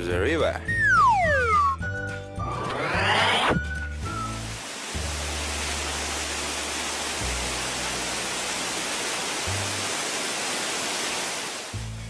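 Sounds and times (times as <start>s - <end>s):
background music with low bass: 0.0s - 5.4s, 11.8s - 12.0s
water gushing from a pipe: 4.3s - 11.8s.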